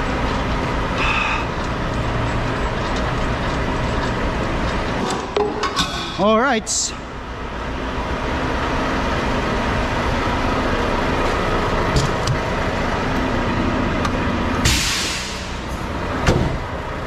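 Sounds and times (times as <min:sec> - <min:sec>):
diesel truck engine idling: 0:00.0 - 0:05.1, 0:06.2 - 0:17.0.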